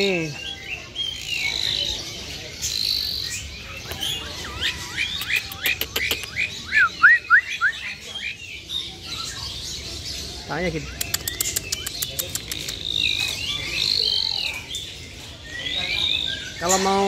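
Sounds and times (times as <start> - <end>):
songbirds chirping and whistling: 0.0 - 17.0
sharp clicks: 10.9 - 13.3.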